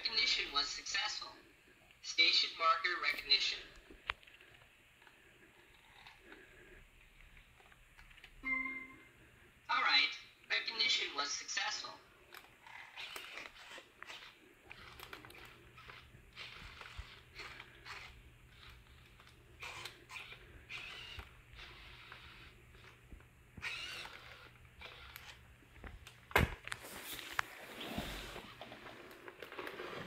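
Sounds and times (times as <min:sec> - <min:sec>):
low steady hum: 0:00.0 - 0:12.7
robot joint motors whirring: 0:12.3 - 0:25.4.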